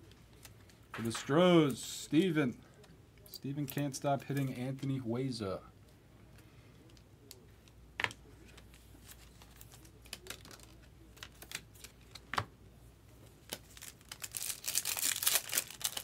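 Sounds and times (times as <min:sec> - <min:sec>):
foil pack crinkling torn open: 0:13.5 - 0:16.0.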